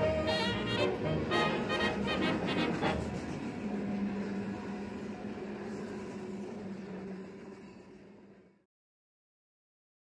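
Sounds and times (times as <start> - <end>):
brass music: 0.0 - 3.2.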